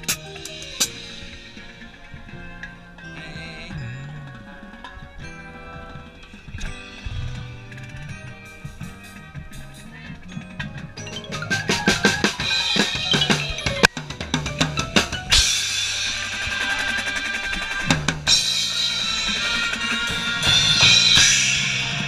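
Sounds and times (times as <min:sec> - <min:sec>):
keyboard percussion held tones: 0:00.0 - 0:22.0
drum hits: 0:10.7 - 0:22.0.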